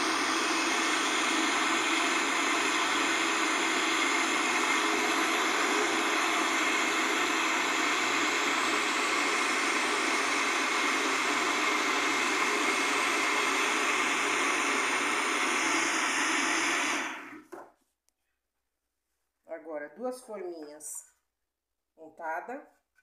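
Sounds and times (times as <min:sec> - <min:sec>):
blender running: 0:00.0 - 0:17.6.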